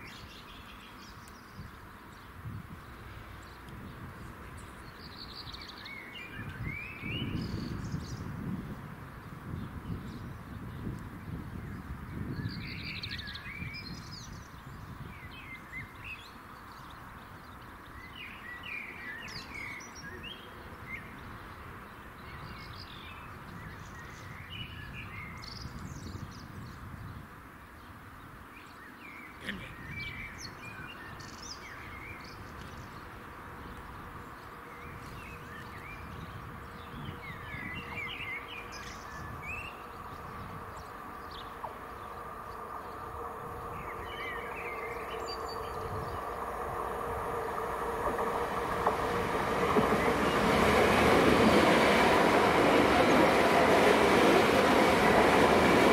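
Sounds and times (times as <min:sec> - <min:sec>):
small birds chirping: 0:28.6 - 0:55.9.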